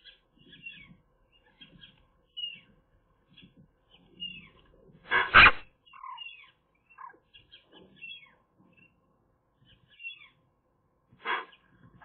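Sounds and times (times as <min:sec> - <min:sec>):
magpie harsh call: 0:05.2 - 0:07.2
soft chirping notes: 0:05.8 - 0:10.4.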